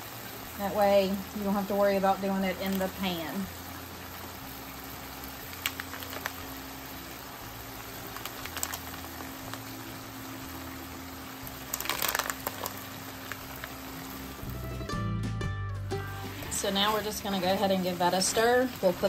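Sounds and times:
food sizzling in a frying pan: 0.0s - 15.0s, 16.0s - 19.0s
gnocchi dropped into pan: 11.7s - 12.8s.

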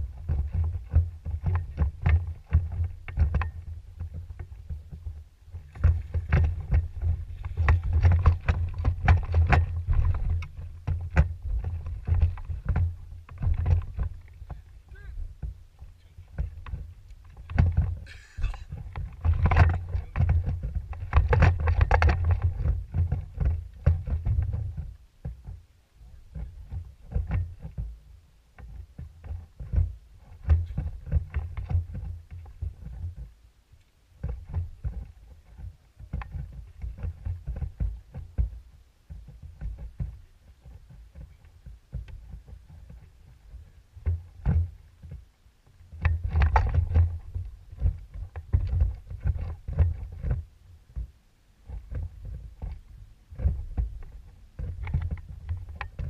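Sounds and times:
boat engine rumble: 1.9s - 20.2s.

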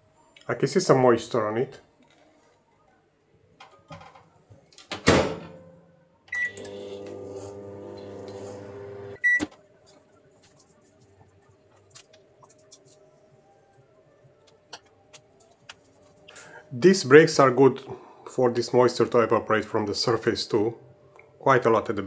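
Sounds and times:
microwave running hum: 6.3s - 9.4s
microwave beep: 6.3s - 9.5s.

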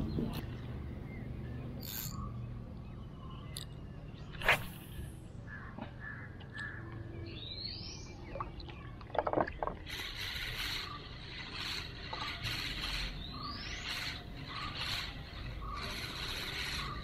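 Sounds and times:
fishing reel whirring: 1.8s - 2.3s, 9.9s - 17.0s
sharp reel clicks: 1.8s - 2.3s, 9.9s - 17.0s.

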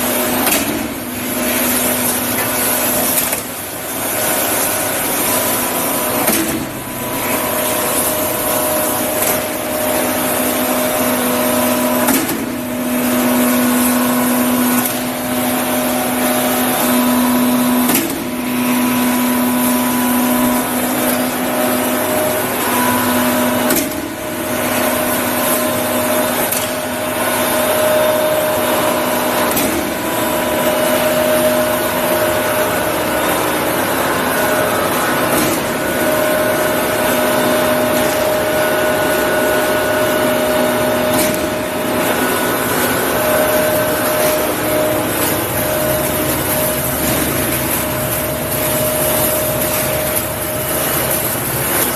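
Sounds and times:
machine hum with held tones: 0.0s - 51.9s.

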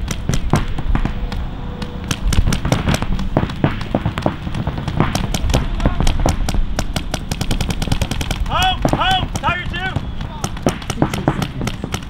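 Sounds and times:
paintball markers popping: 0.0s - 12.0s.

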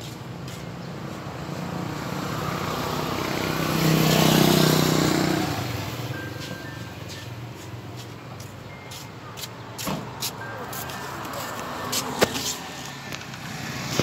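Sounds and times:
vehicle driving past: 1.6s - 6.3s.

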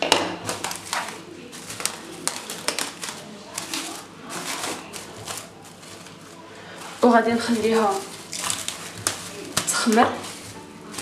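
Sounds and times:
cling film crinkling: 0.0s - 11.0s.

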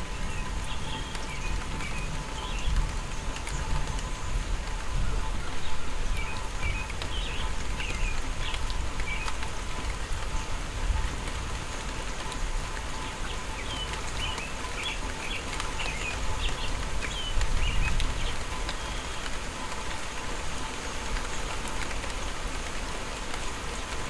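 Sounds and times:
rain falling on lawn and trees: 0.0s - 24.0s
bird chirping: 0.1s - 4.0s, 13.0s - 19.3s.

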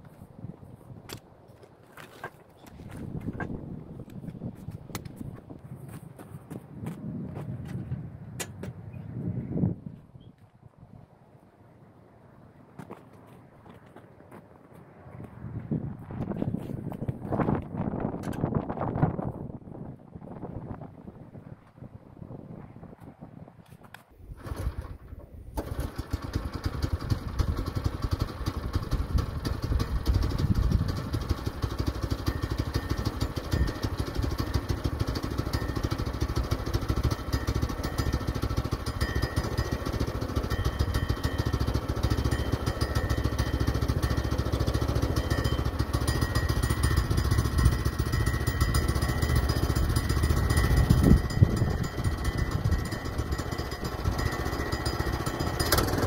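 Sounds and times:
small gasoline engine running: 24.3s - 56.0s.

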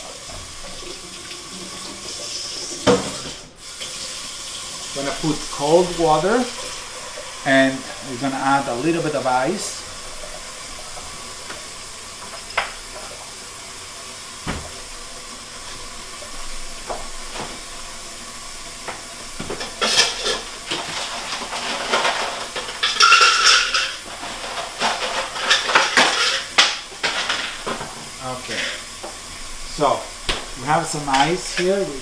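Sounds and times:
steady low hiss: 3.5s - 20.6s, 26.1s - 32.0s
ice cubes and dishes clattering: 19.4s - 28.8s.

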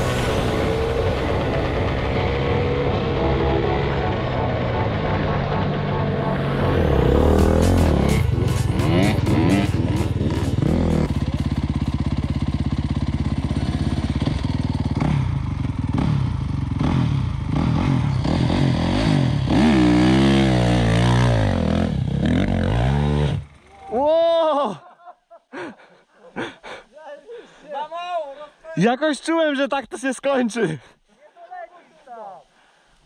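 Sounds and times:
dirt bike revving: 5.8s - 23.8s
dirt bike engines idling: 7.0s - 18.8s.

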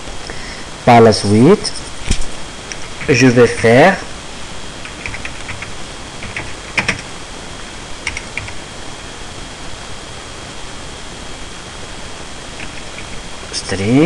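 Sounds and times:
steady background hiss: 0.0s - 14.0s
keyboard typing: 4.8s - 7.1s, 8.0s - 8.6s, 12.6s - 13.2s.

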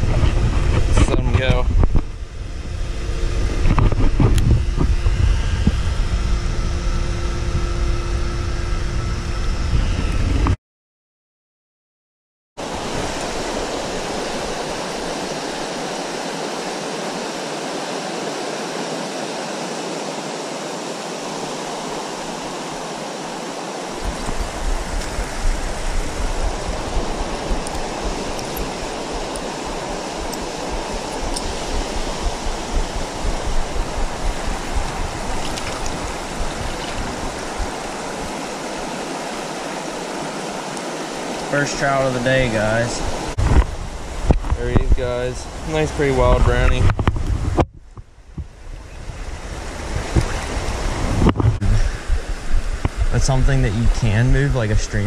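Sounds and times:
uneven low rumble: 0.0s - 10.6s, 24.0s - 38.4s
creek water rushing: 12.6s - 55.0s.

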